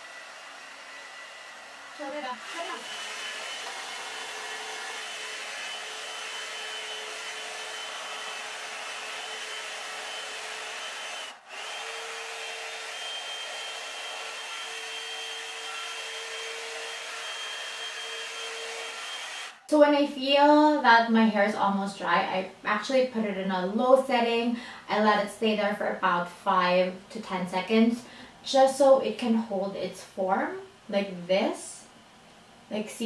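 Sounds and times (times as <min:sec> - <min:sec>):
hair dryer blowing air: 0:00.0 - 0:19.7.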